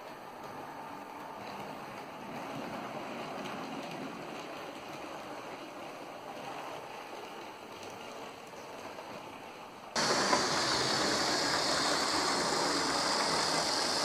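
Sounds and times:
model train wheels rumbling on rails: 0.9s - 14.0s
model train motor whir: 10.0s - 14.0s.

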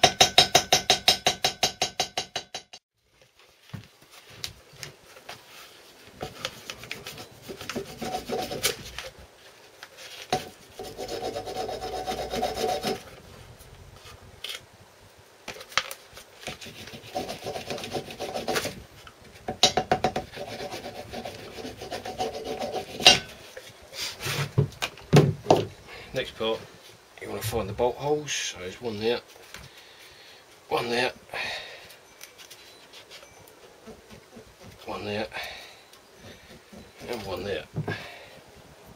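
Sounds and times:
hammer tapping on metal: 0.0s - 2.8s, 19.5s - 20.3s.

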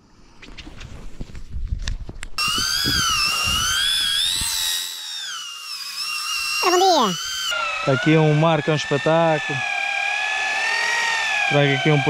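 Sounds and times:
fishing reel whining: 2.4s - 12.0s.

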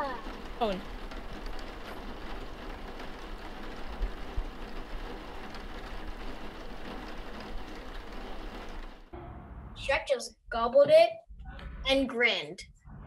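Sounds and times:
steady rain hiss: 0.0s - 9.1s.

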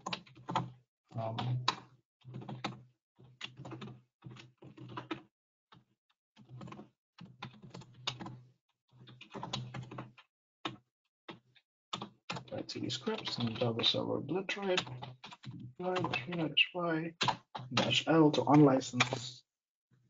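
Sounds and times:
typing on computer keyboard: 0.0s - 2.8s, 3.4s - 5.8s, 6.5s - 8.4s, 11.9s - 14.0s, 14.6s - 16.5s, 17.2s - 19.2s.

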